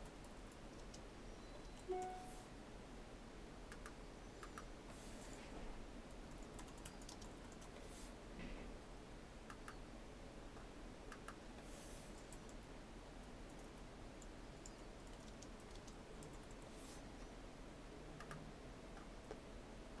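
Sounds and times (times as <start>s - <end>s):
keyboard typing: 0.0s - 1.0s, 1.6s - 2.4s, 6.2s - 7.8s, 12.2s - 12.6s, 13.5s - 16.7s
low steady hum: 0.0s - 20.0s
mouse clicks: 3.7s - 4.7s, 9.5s - 9.8s, 18.2s - 18.4s.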